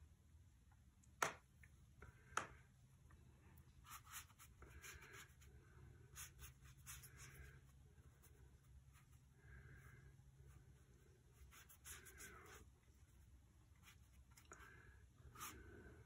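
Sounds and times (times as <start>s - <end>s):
brush swishing on paper: 3.8s - 5.5s, 6.1s - 9.2s, 10.5s - 14.5s, 15.3s - 15.7s.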